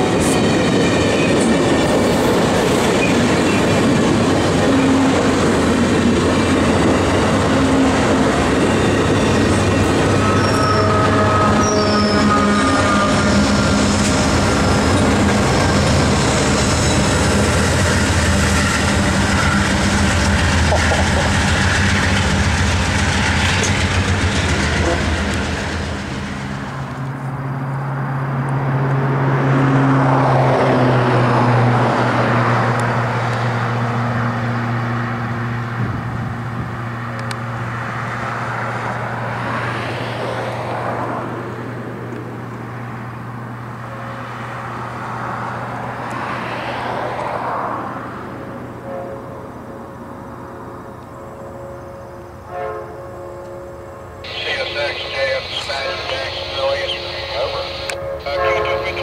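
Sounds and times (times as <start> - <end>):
train wheels rumbling and clattering: 0.0 - 27.9
distant diesel locomotive hum: 0.0 - 59.0
thin squealing of wheels: 10.2 - 13.1.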